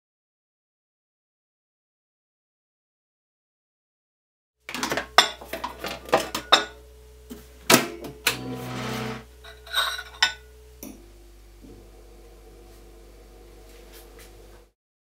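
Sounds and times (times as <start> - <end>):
microwave oven humming: 4.7 - 14.7.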